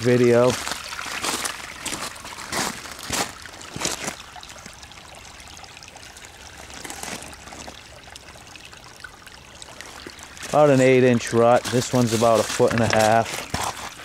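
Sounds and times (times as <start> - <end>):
footsteps on gravel and leaves: 0.0 - 4.2, 6.6 - 7.8, 10.4 - 14.0
water trickling through gravel: 0.0 - 14.0.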